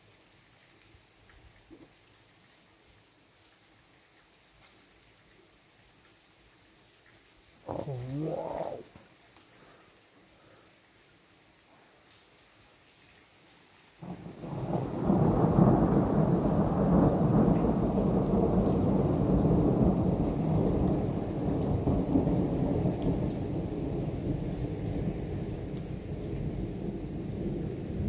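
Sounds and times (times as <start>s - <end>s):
low rolling thunder rumble: 14.0s - 28.0s.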